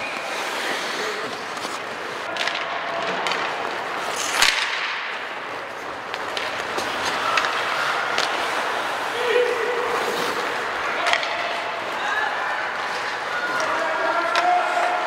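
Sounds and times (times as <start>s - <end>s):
skates hissing on ice: 0.0s - 2.3s
hockey sticks and puck clacking: 0.0s - 15.0s.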